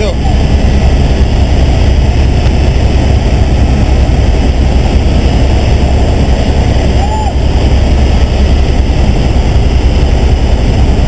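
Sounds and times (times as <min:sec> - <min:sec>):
helicopter engine and rotor drone: 0:00.0 - 0:11.0.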